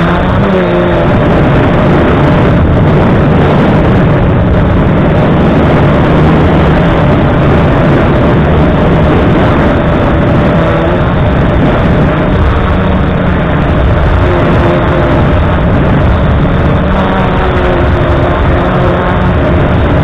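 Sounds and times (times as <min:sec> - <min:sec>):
dense rushing noise: 0:00.0 - 0:20.0
drone motors buzzing: 0:00.0 - 0:20.0.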